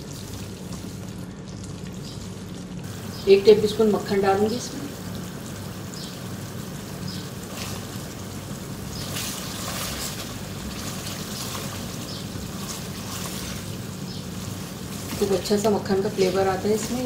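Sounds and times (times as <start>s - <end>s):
steady low hum: 0.0s - 17.0s
food sizzling in a pan: 1.8s - 17.0s
wooden spatula scraping: 8.9s - 15.7s.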